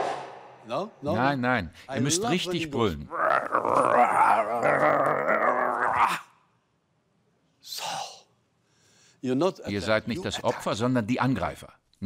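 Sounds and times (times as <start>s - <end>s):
group of voices roaring: 3.1s - 6.3s.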